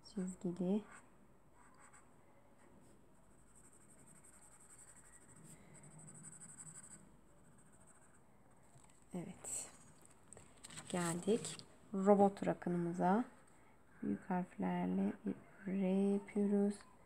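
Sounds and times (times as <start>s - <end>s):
felt-tip pen scribbling on paper: 3.4s - 8.2s.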